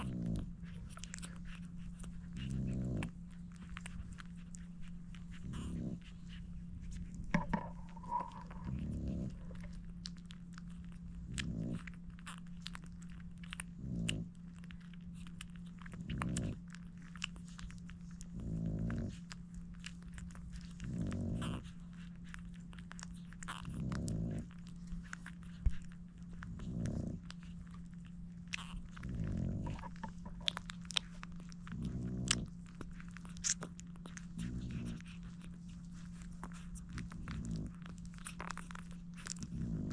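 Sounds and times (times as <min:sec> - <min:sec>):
dog breathing: 0:00.0 - 0:10.0, 0:15.2 - 0:39.9
low hum: 0:00.0 - 0:13.6, 0:28.9 - 0:33.4
puppies suckling: 0:00.0 - 0:39.9.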